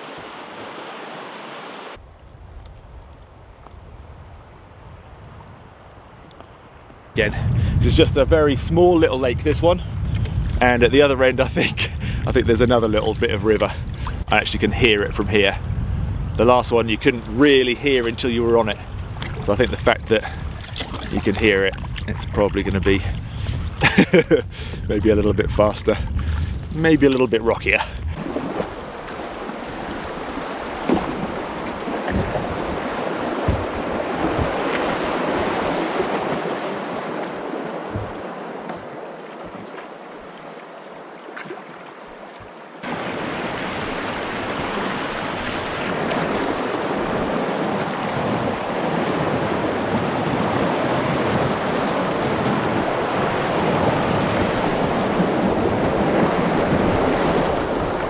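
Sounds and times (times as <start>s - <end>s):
white water rushing: 0.0s - 2.0s, 27.6s - 58.0s
quieter moving water: 0.0s - 58.0s
wind on microphone: 2.0s - 39.8s, 42.8s - 58.0s.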